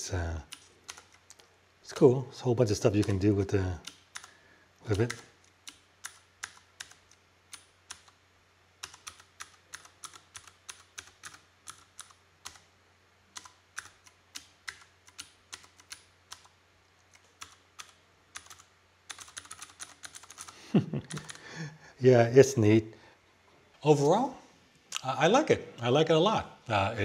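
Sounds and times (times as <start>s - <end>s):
mechanical keyboard key clicks: 8.8s - 12.6s, 17.1s - 20.5s.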